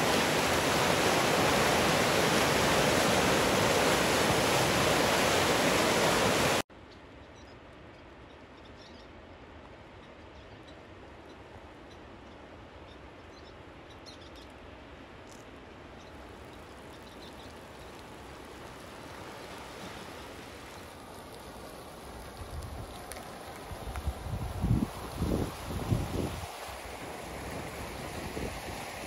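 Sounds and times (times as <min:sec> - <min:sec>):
muddy water rushing through debris: 0:00.0 - 0:06.6, 0:16.2 - 0:29.0
wind buffeting microphone: 0:20.0 - 0:29.0.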